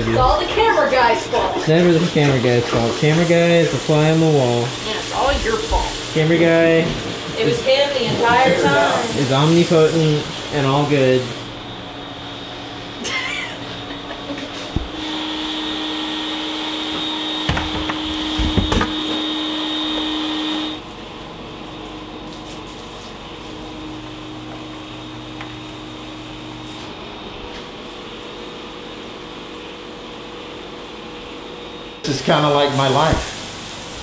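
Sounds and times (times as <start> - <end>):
electric motor whining: 14.8 - 20.8.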